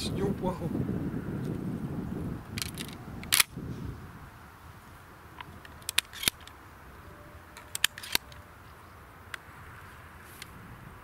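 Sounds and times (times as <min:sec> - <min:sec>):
shotgun metallic clicks: 0:02.6 - 0:03.5, 0:05.4 - 0:06.6, 0:07.6 - 0:08.5.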